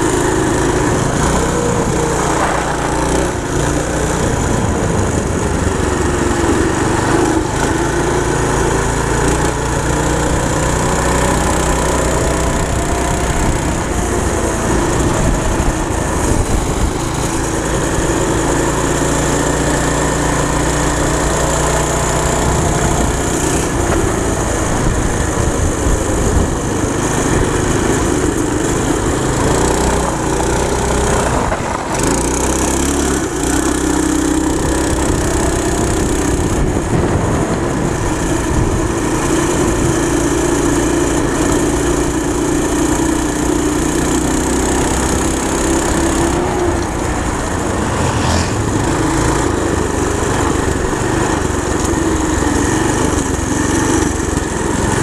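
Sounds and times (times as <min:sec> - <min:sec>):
go-kart engine revving: 0:00.0 - 0:55.0.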